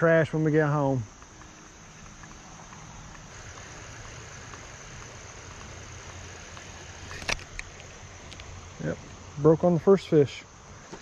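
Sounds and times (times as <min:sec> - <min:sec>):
reel small tick: 0:01.1 - 0:08.5
fishing reel whirring: 0:01.3 - 0:07.7
reel sharp click: 0:06.5 - 0:08.5.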